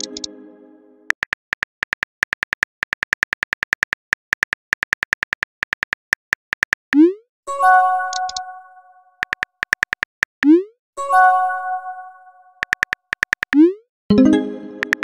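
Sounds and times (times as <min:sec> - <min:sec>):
phone keyboard typing clicks: 0:00.0 - 0:00.3, 0:01.1 - 0:06.8, 0:08.1 - 0:08.4, 0:09.2 - 0:10.4, 0:12.6 - 0:13.6, 0:14.8 - 0:15.0.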